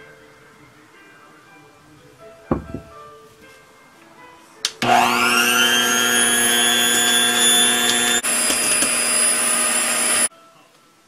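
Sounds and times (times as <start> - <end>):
electric hand mixer whirring: 4.8 - 10.3.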